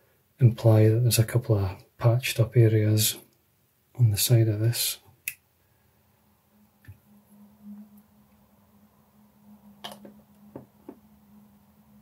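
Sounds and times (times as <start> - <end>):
steady low hum: 4.0 - 12.0.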